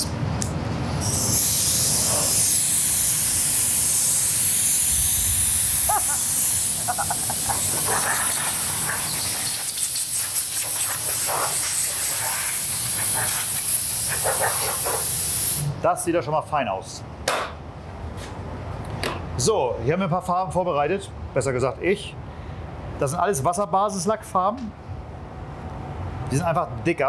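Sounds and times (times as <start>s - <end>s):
compressed air blow gun hissing: 1.0s - 15.8s.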